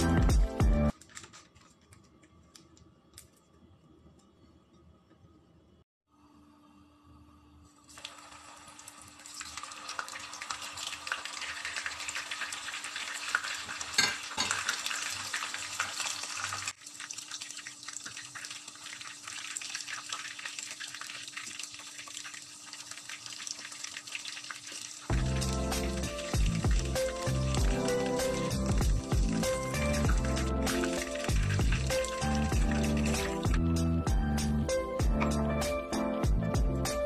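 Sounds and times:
food sizzling in hot oil: 7.8 - 33.6.

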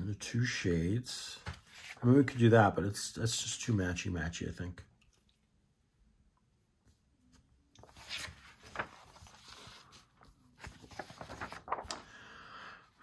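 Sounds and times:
paper crackles and taps: 7.8 - 9.6, 10.2 - 12.1
paper rustling: 7.8 - 12.2.

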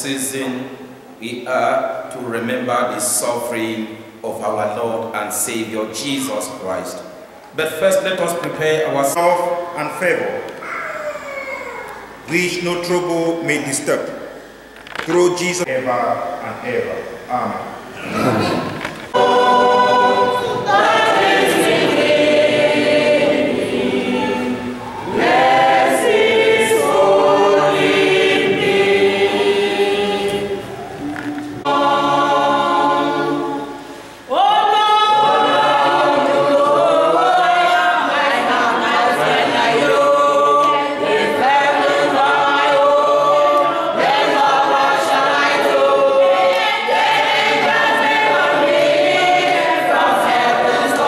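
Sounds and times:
choir singing: 18.0 - 51.0.

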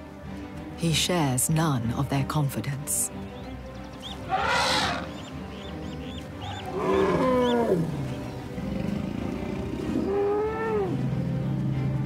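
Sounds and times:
elephants calling: 4.1 - 11.4.

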